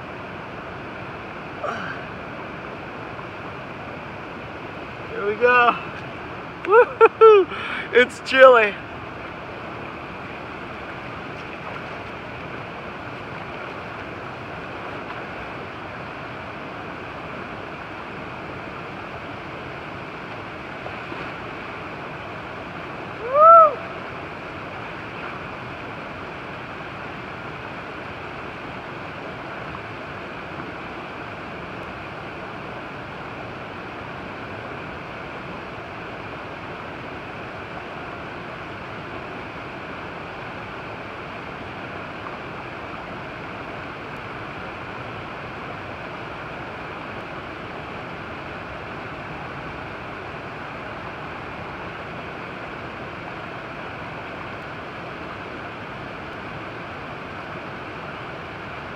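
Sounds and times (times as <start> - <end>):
water rushing: 0.0 - 58.9
rising and falling call: 23.2 - 23.9.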